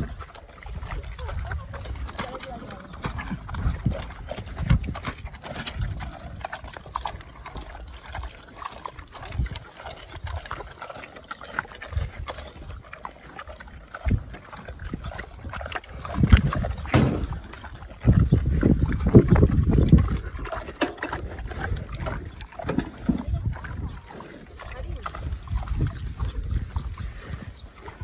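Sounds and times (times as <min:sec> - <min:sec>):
pig chewing with wet smacking: 0:00.0 - 0:28.0
low thumps: 0:16.8 - 0:17.6.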